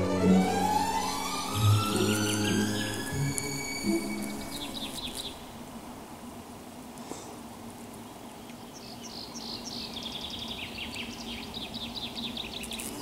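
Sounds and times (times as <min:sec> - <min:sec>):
bumblebee buzzing: 0:00.0 - 0:05.6, 0:12.6 - 0:13.0
songbird chirping and trilling: 0:00.0 - 0:05.6, 0:08.4 - 0:13.0.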